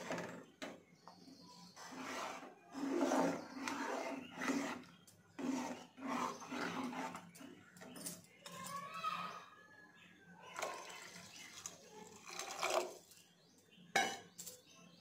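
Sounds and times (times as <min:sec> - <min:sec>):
ladle stirring in metal pot: 0:01.8 - 0:07.6.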